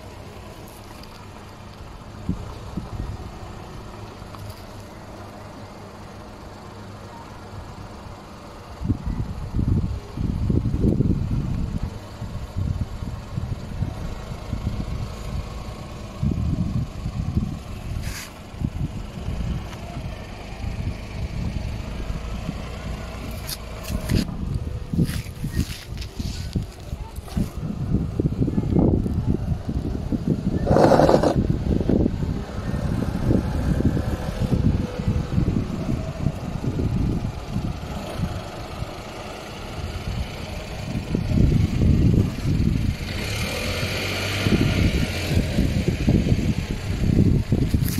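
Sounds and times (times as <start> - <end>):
car engine rumbling: 0.0 - 47.9
car driving over dirt: 13.8 - 47.9
brief hiss: 18.0 - 18.4.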